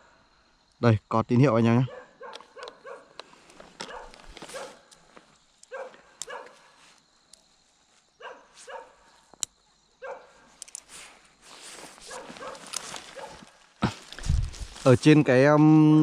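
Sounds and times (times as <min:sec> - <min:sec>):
dog barking: 0:01.8 - 0:03.2, 0:03.8 - 0:04.9, 0:05.7 - 0:06.8, 0:08.2 - 0:09.1, 0:10.0 - 0:10.4, 0:12.1 - 0:13.5.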